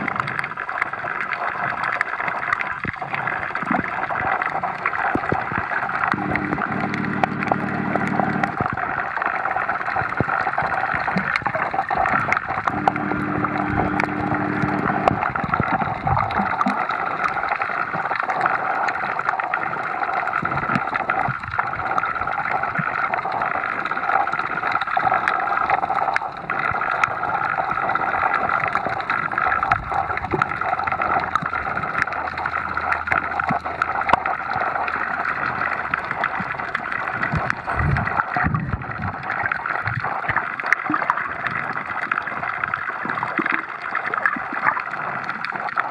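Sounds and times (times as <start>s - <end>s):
faint underwater clicks: 0.0s - 9.0s, 9.8s - 45.9s
low hum: 6.0s - 8.8s, 12.6s - 15.9s, 29.6s - 36.4s.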